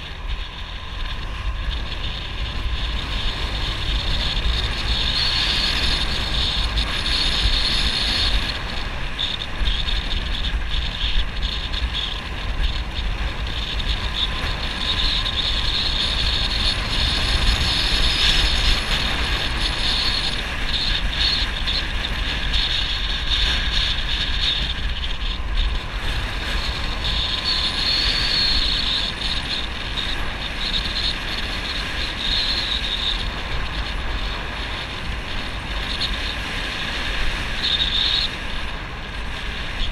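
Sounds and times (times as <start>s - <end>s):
motorbike engine running: 0.0s - 39.9s
wind rumble on microphone: 0.0s - 39.9s.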